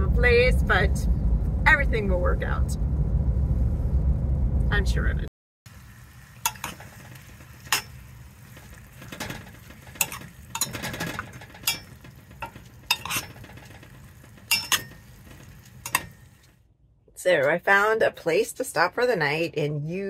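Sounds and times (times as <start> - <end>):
low steady hum: 0.0 - 17.1
metal spoon stirring in a pot: 6.4 - 16.4
spoon clinking against pot: 10.0 - 10.9, 14.5 - 15.1.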